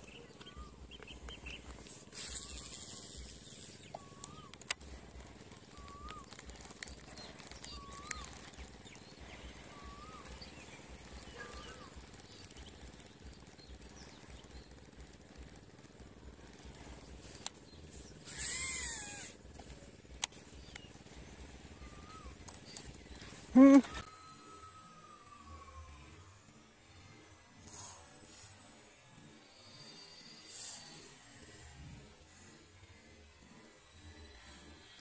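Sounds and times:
bird whistling: 0:00.0 - 0:04.6, 0:05.6 - 0:06.4, 0:07.0 - 0:12.8
sharp clicks: 0:00.0 - 0:24.1.

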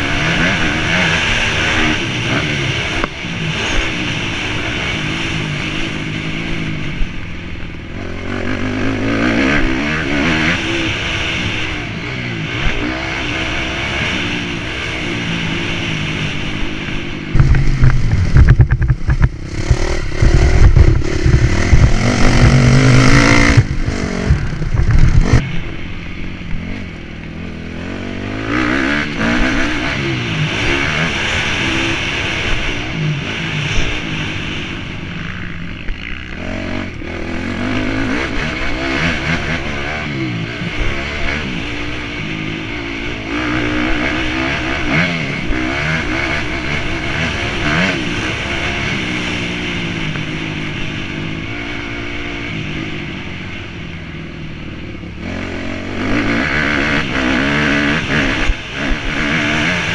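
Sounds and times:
motorbike engine revving: 0:00.0 - 0:59.9
low buffeting and knocks: 0:17.3 - 0:22.8.

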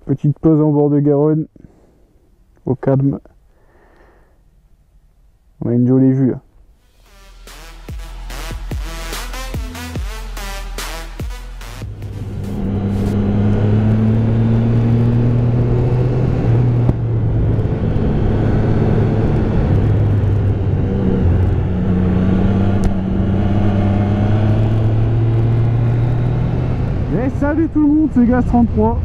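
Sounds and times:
motorcycle engine cruising: 0:11.8 - 0:29.0.

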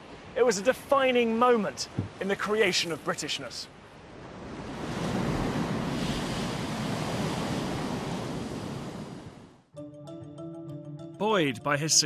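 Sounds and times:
waves breaking: 0:00.0 - 0:09.6.

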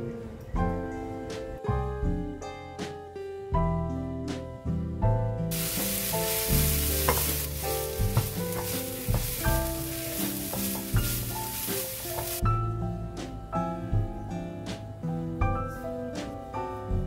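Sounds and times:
light instrumental music: 0:00.0 - 0:17.0
coconut sizzling in a wok: 0:05.5 - 0:12.4
spatula scraping a wok: 0:05.6 - 0:12.4.

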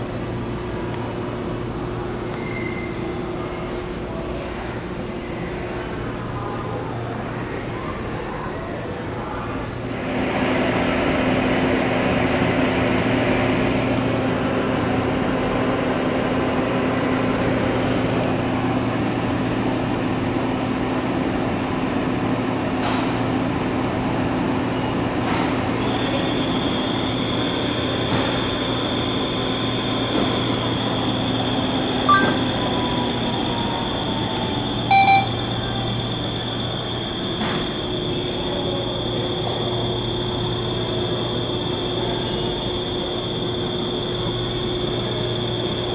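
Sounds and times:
short electronic beeps: 0:32.1 - 0:32.6, 0:34.9 - 0:35.4.

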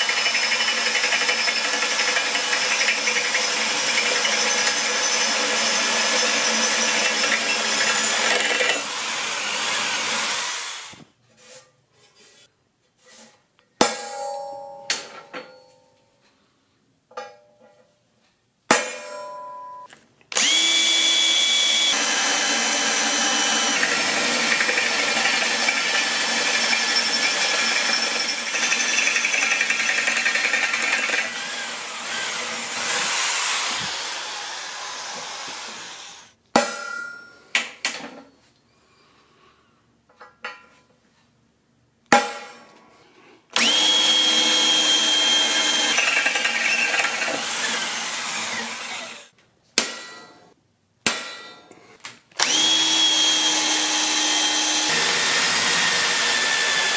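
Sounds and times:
drill press boring steel whine: 0:00.0 - 0:10.9, 0:20.4 - 0:36.2, 0:43.6 - 0:49.3, 0:52.4 - 0:56.9
hammer striking steel punch: 0:49.8 - 0:50.3, 0:51.0 - 0:51.6.

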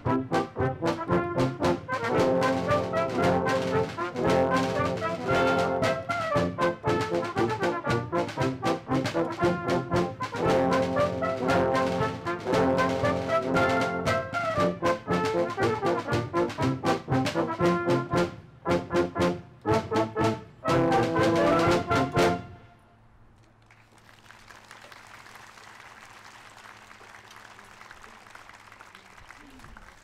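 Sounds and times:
brass band playing: 0:00.0 - 0:22.8
light audience applause: 0:23.4 - 0:30.0.

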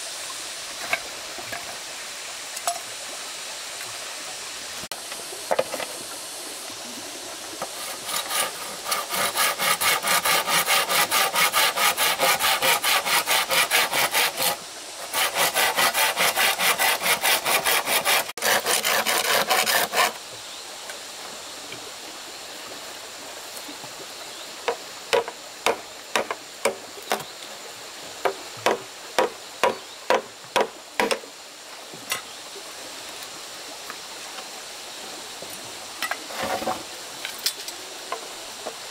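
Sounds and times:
hand saw cutting wood: 0:07.6 - 0:20.2
sharp knocks: 0:24.7 - 0:27.2, 0:28.3 - 0:31.2.

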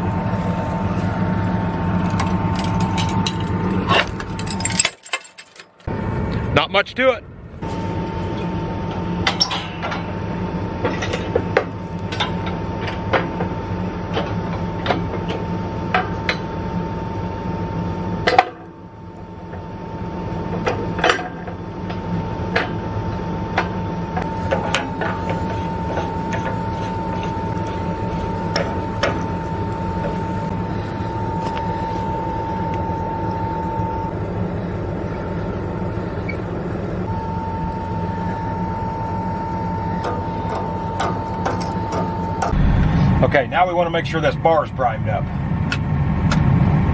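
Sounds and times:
high whine: 0:00.0 - 0:46.9
metal clinks and knocks of chains: 0:04.2 - 0:05.8
tractor engine idling: 0:24.2 - 0:45.8.

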